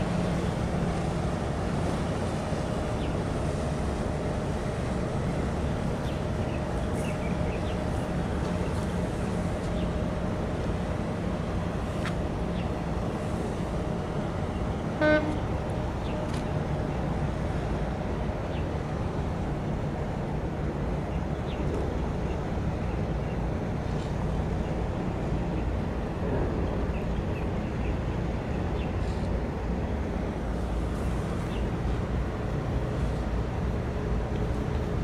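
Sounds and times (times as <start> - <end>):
short horn toot: 15.0 - 15.4.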